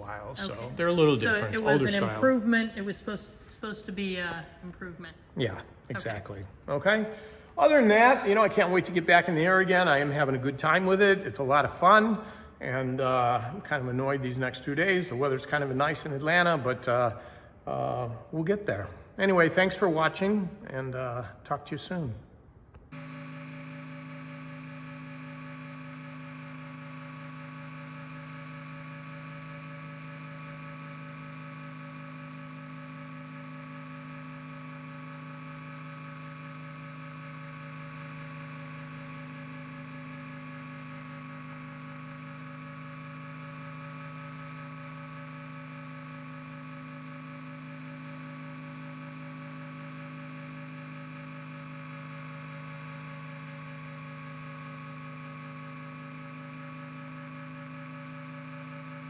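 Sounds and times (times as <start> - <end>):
helicopter engine and rotor drone: 0.0 - 2.6, 22.9 - 59.0.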